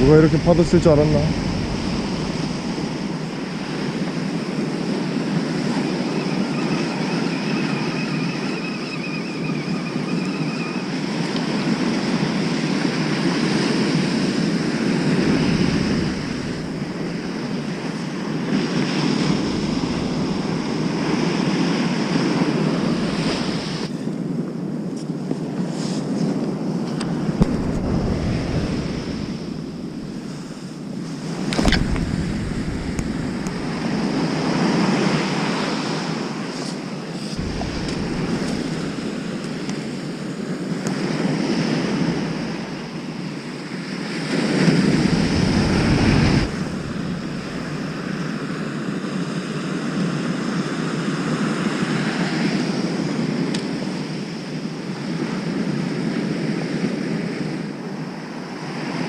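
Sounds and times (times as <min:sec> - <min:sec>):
surf breaking on beach: 0:00.0 - 0:06.1, 0:11.5 - 0:23.9, 0:26.9 - 0:53.5
wind buffeting microphone: 0:00.0 - 0:07.8, 0:10.8 - 0:58.6.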